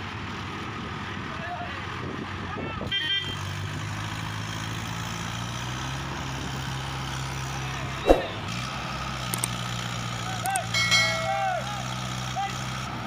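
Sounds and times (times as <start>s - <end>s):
tractor diesel engines running: 0.0s - 13.0s
sharp bang: 8.0s - 8.5s.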